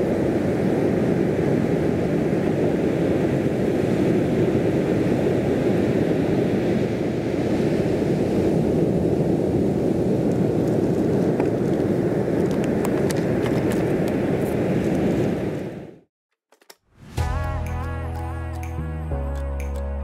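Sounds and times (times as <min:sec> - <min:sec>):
sea roaring on pebble beach: 0:00.0 - 0:15.9.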